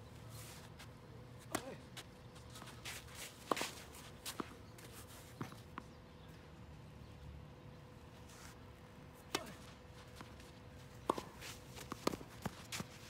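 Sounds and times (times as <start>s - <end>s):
quiet outdoor background: 0.0s - 13.0s
tennis ball impacts: 9.2s - 10.2s, 11.0s - 12.8s.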